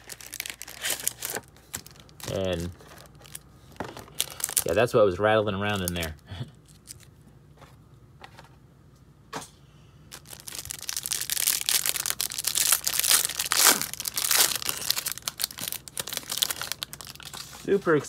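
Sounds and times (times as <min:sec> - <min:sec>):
plastic wrap crinkling and tearing: 0:00.0 - 0:04.9, 0:05.6 - 0:07.1, 0:10.1 - 0:17.7.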